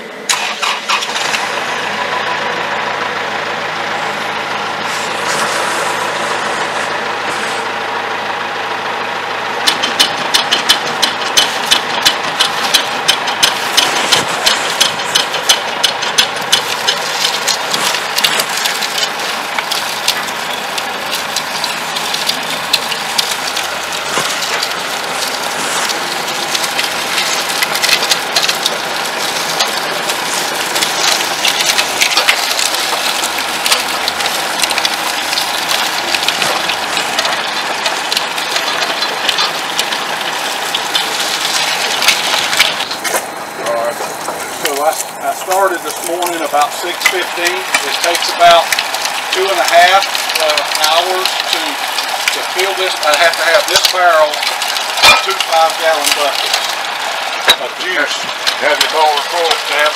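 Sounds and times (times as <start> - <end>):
sugarcane mill clacking: 0.0 - 59.9
tractor engine running: 0.0 - 59.9.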